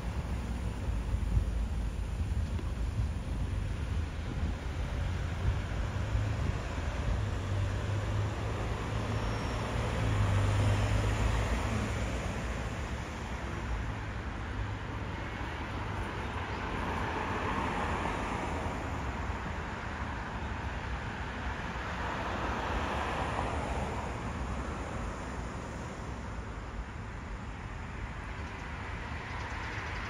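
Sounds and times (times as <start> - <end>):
traffic low rumble: 0.0 - 30.0
vehicles passing: 0.0 - 30.0.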